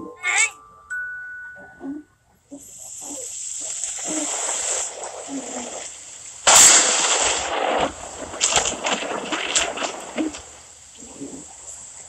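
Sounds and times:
rain hissing: 0:02.5 - 0:12.0
thunderclap rumbling: 0:04.1 - 0:11.5.

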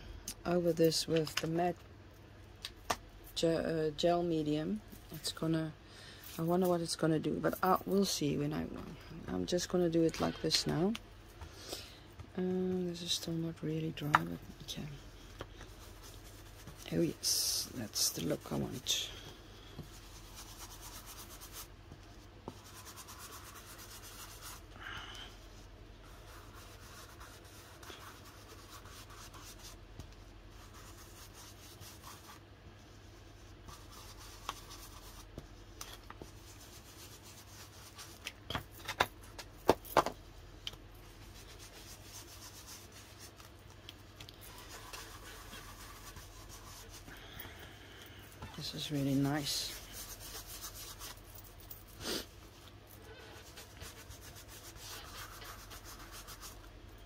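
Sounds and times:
paper being rubbed: 0:19.9 - 0:21.7, 0:22.5 - 0:24.7, 0:26.1 - 0:29.8, 0:44.5 - 0:47.1, 0:48.7 - 0:51.2, 0:53.4 - 0:56.6.

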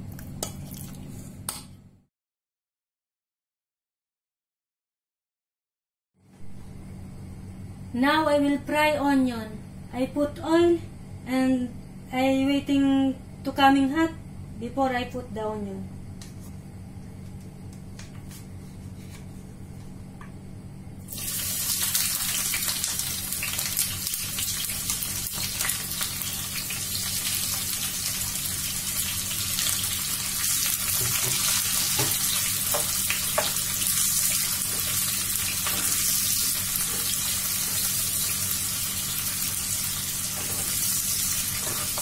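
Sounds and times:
onions sizzling in hot oil: 0:21.1 - 0:42.0.

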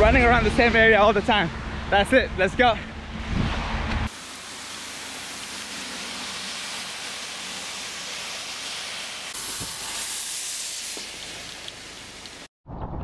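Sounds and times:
rain on a wet street: 0:04.1 - 0:12.5.

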